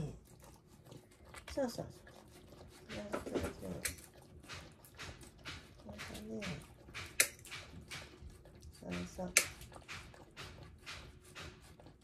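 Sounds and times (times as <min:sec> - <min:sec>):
puppy licking food from a dish: 0:00.0 - 0:12.0.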